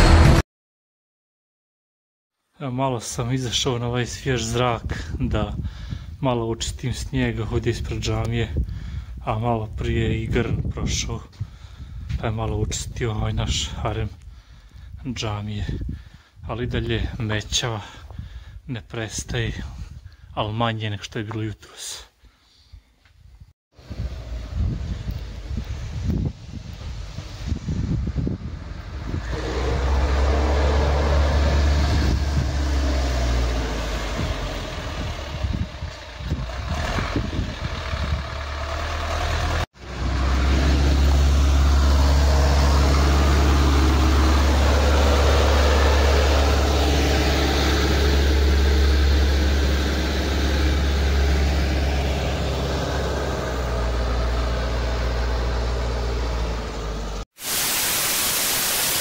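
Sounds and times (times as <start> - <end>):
tractor diesel engine running: 28.5 - 57.2
static hiss: 57.4 - 59.0.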